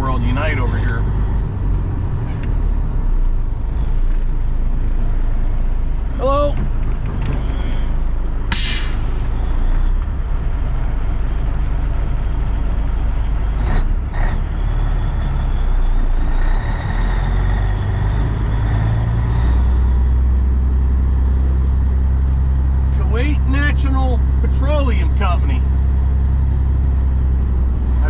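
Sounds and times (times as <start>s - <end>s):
diesel truck engine idling: 0.0s - 28.0s
air hiss: 8.5s - 9.4s.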